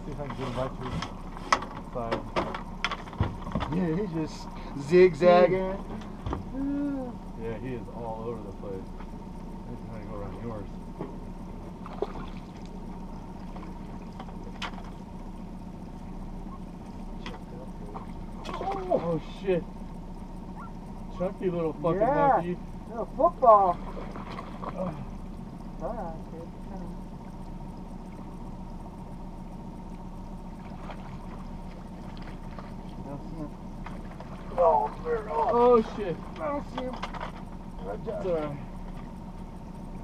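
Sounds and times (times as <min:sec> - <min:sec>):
faint steady whine: 0:00.0 - 0:40.0
outboard motor humming: 0:00.0 - 0:40.0
faint short splashes: 0:11.8 - 0:15.1, 0:16.4 - 0:20.8, 0:23.7 - 0:25.2, 0:30.5 - 0:36.4.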